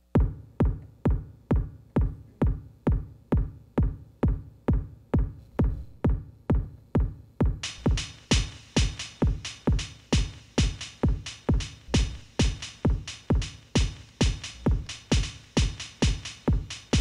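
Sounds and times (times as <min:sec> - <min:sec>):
electronic kick drum beat: 0:00.0 - 0:17.0
hissing percussion: 0:07.7 - 0:17.0.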